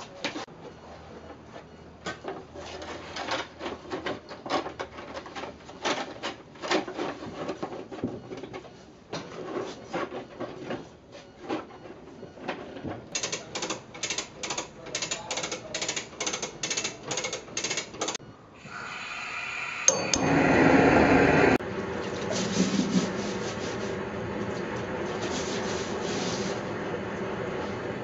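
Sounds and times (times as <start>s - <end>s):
gas burner hissing: 18.6s - 21.6s
rope rubbing against wooden staves: 25.1s - 26.7s.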